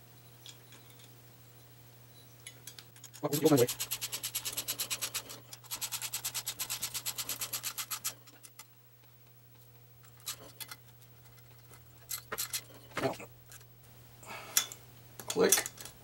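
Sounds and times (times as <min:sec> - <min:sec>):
socket ratchet clicking fast: 0:03.1 - 0:08.2.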